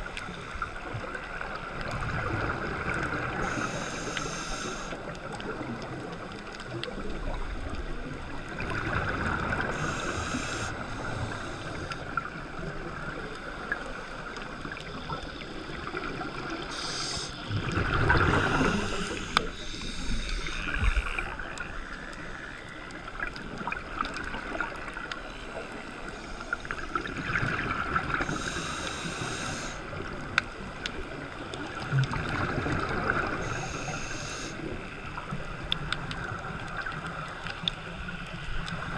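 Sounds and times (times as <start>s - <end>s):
underwater bubbles gurgling: 0.0s - 38.9s
water hiss: 3.1s - 5.1s, 8.7s - 12.2s, 14.9s - 22.8s, 25.2s - 30.1s, 31.6s - 35.3s.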